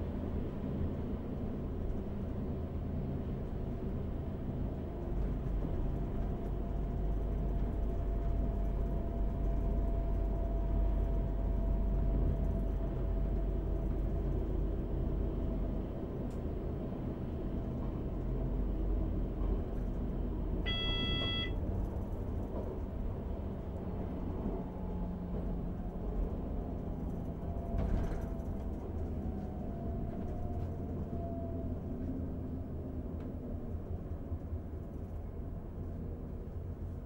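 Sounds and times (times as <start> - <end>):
diesel train rumble: 0.0 - 37.0
faint whine: 20.6 - 21.6
short electronic beep: 20.7 - 21.6.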